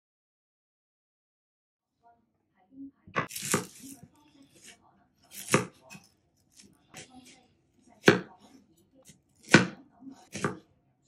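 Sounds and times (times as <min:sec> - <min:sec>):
knife chopping on wooden board: 0:03.2 - 0:04.0, 0:05.3 - 0:06.1, 0:08.0 - 0:08.5, 0:09.1 - 0:10.7.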